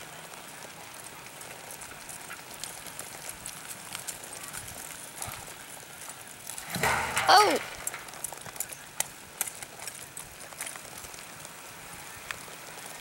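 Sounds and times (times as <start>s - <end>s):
hoofbeats on dirt: 0.0s - 13.0s
outdoor background hiss: 0.0s - 13.0s.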